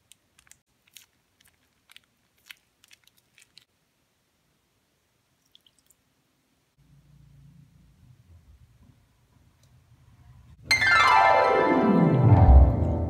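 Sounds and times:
glue squeezed from bottle crackling: 0.0 - 3.7.

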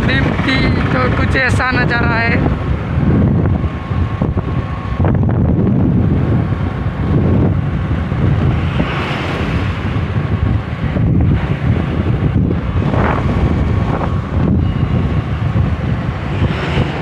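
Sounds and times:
motorcycle engine and road rumble: 0.0 - 17.0
wind buffeting microphone: 0.0 - 17.0.

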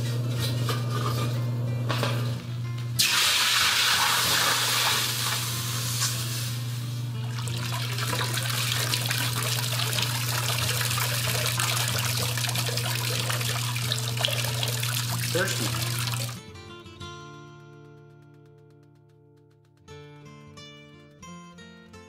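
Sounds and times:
hot metal hissing in water: 3.0 - 6.9, 7.8 - 16.4
water trickling and dripping: 7.4 - 16.4.

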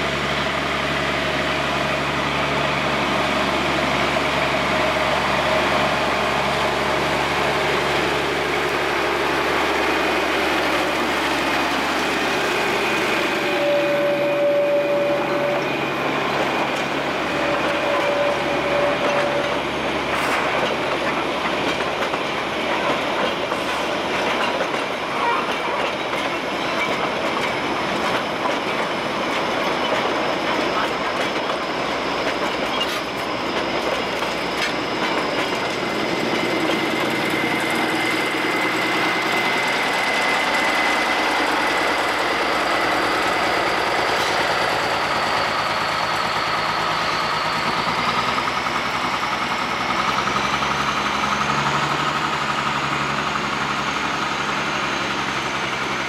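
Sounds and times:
diesel locomotive engine: 0.0 - 56.0
high wheel squeal: 2.3 - 21.1, 22.2 - 56.0
train wheels clattering over rail joints: 16.6 - 56.0.

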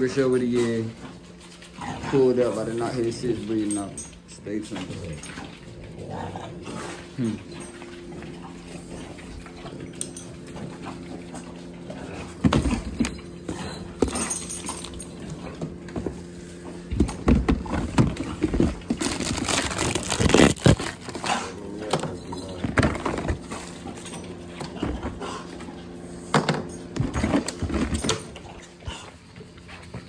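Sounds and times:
steady low hum: 0.0 - 30.0
packaging and gloves rustling: 17.6 - 21.4.

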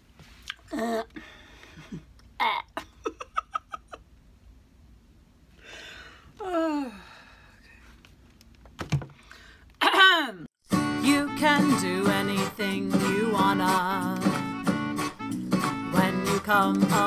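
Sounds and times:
woman groaning: 0.7 - 1.2, 6.4 - 7.4
woman giggling: 1.7 - 4.1.

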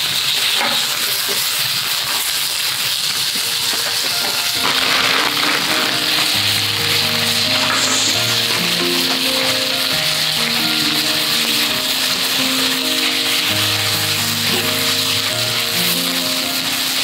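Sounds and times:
food sizzling in a pan: 0.0 - 17.0
background music: 4.0 - 17.0.

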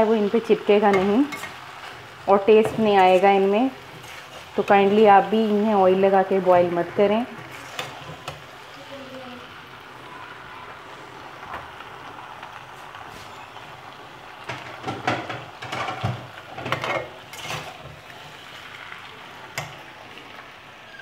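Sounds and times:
frying sizzle: 0.0 - 21.0
metal spatula scraping a wok: 2.6 - 5.2, 7.4 - 8.3, 16.6 - 18.5.

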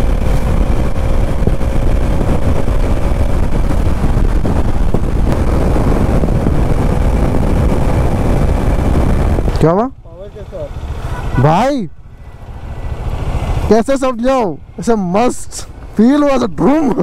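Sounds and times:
wind rush on microphone: 0.0 - 10.0
motorcycle engine running: 0.0 - 17.0.

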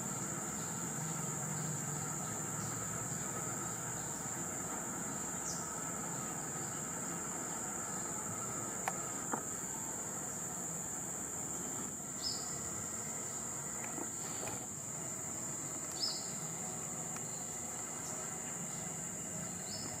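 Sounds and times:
insects droning chorus: 0.0 - 20.0.

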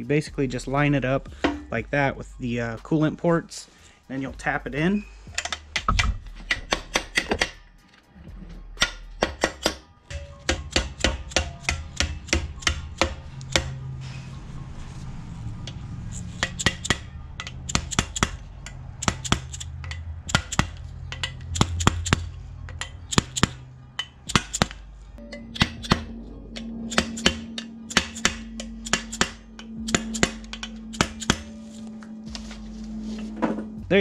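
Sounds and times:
sharp tapping on metal: 5.3 - 7.7, 8.8 - 13.9, 15.7 - 32.2.

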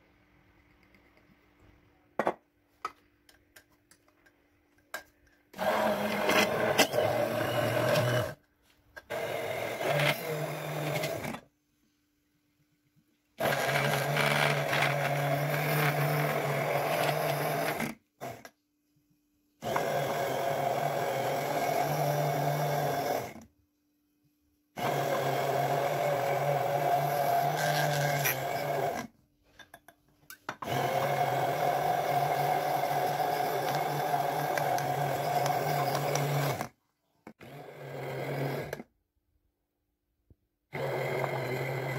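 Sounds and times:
immersion blender motor hum: 5.6 - 8.4, 9.1 - 11.4, 13.4 - 18.5, 19.6 - 23.4, 24.8 - 29.1, 30.6 - 36.7, 37.4 - 38.9, 40.8 - 41.9.

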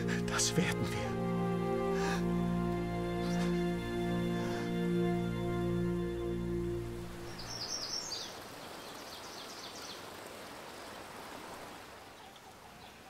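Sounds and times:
film score music: 0.0 - 8.0
stream flowing: 0.0 - 13.0.

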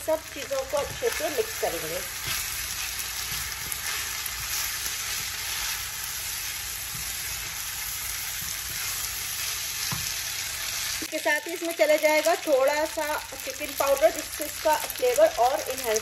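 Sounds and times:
food sizzling in a frying pan: 0.0 - 16.0
spatula scraping a pan: 0.8 - 11.0.

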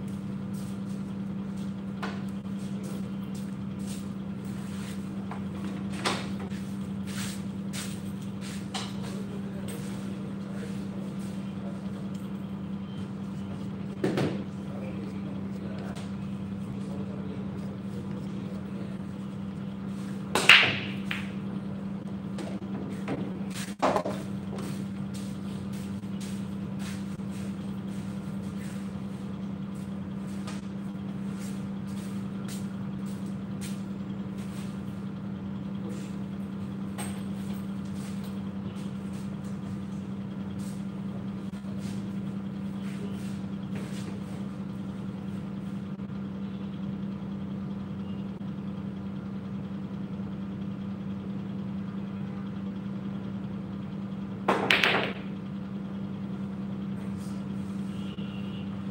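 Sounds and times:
low machine hum: 0.0 - 58.9
cue striking billiard balls: 20.3 - 21.5, 54.4 - 55.4.

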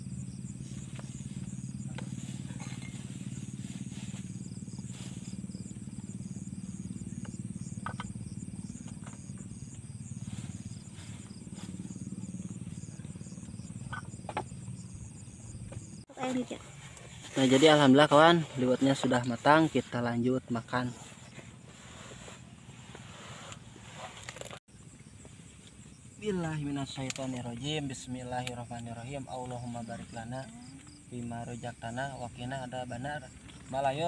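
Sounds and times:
low motor drone: 0.0 - 17.2
insects chirping: 0.0 - 34.0.

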